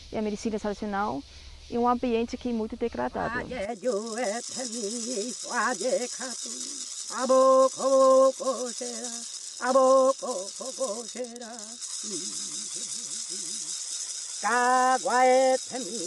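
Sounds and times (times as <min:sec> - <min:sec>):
rattle shaking: 0:03.2 - 0:16.0
person chanting: 0:14.4 - 0:16.0.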